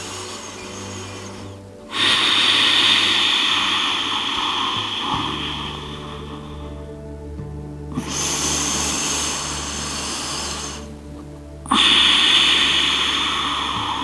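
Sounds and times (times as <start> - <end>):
woman breathing: 0.0 - 7.1, 11.7 - 14.0
soft background music: 0.0 - 14.0.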